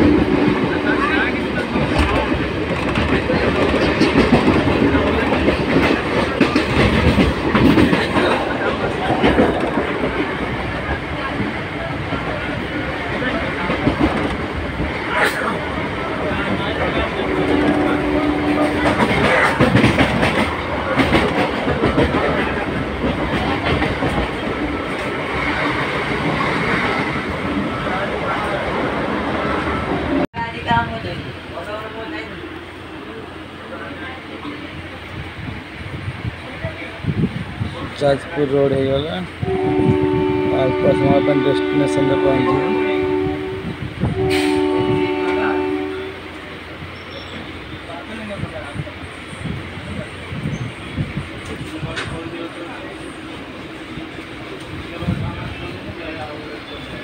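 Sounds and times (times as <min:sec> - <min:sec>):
wheels clickety-clack on rails: 0:00.0 - 0:29.0, 0:41.6 - 0:57.0
train carriage rumble: 0:00.0 - 0:57.0.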